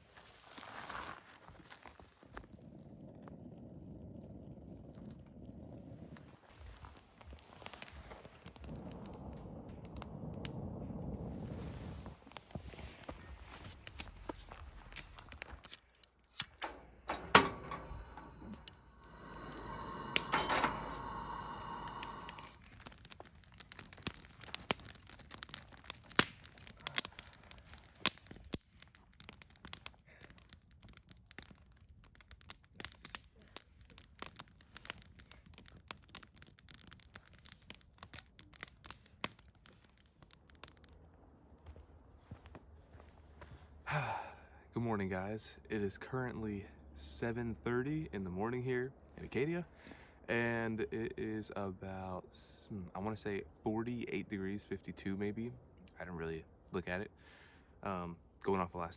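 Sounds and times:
campfire crackling and popping: 0:01.4 - 0:43.0
whistling hiss: 0:17.2 - 0:22.6.

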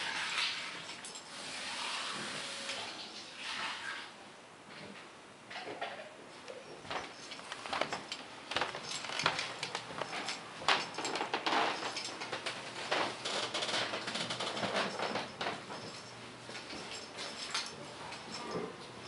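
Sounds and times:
footsteps: 0:06.7 - 0:19.0.

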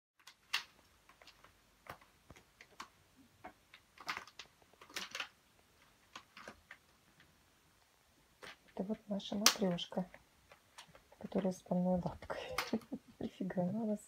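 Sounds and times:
claws clicking on curtain fabric: 0:00.2 - 0:07.3.

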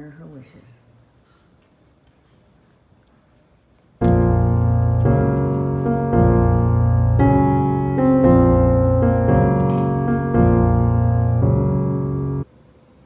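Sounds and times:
slow piano chords: 0:04.0 - 0:12.5.

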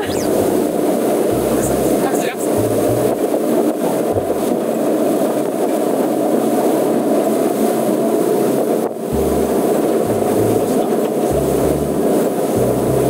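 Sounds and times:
boat engine running: 0:00.0 - 0:05.2, 0:09.0 - 0:13.0
wind buffeting microphone: 0:00.0 - 0:13.0.

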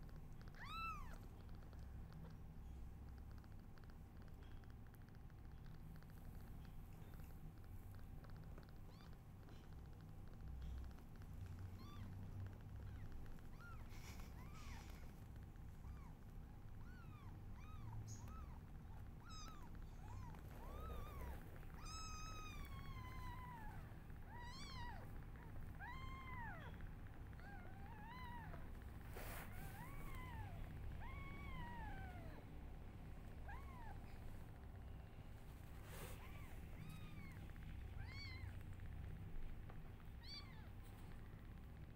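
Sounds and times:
kittens mewing: 0:16.8 - 0:28.7.

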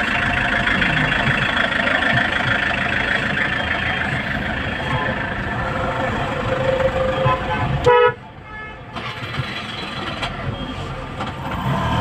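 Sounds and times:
traffic rumble: 0:00.0 - 0:12.0
vehicle horn toot: 0:05.6 - 0:09.1.

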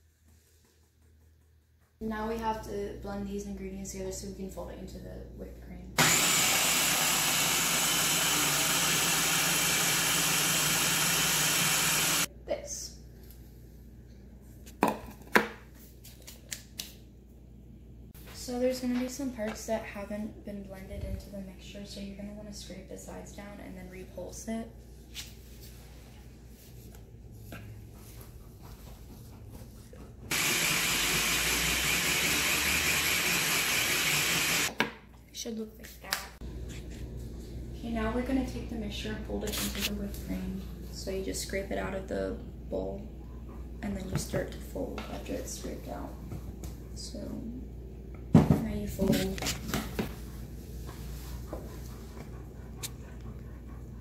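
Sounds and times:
food chopper motor humming: 0:06.0 - 0:12.3, 0:30.3 - 0:34.7.

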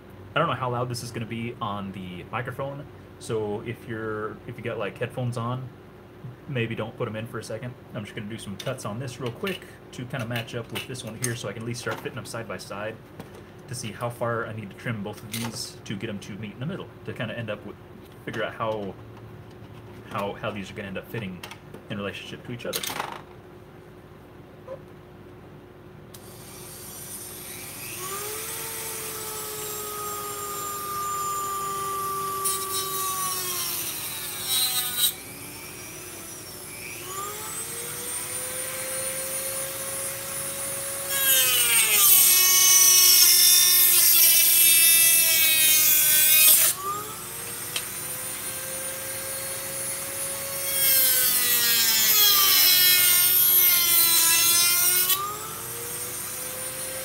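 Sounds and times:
rotary tool motor whine: 0:26.2 - 0:42.0.

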